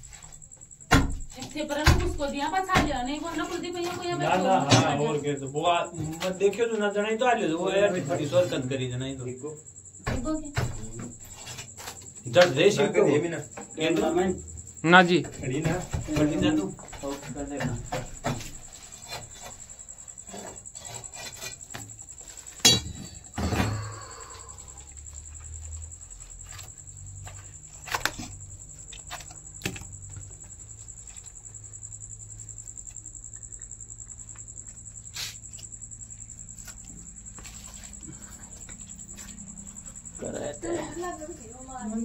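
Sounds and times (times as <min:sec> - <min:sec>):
crickets trilling: 0:00.0 - 0:42.0
metal hook knocking on brick: 0:22.6 - 0:23.2.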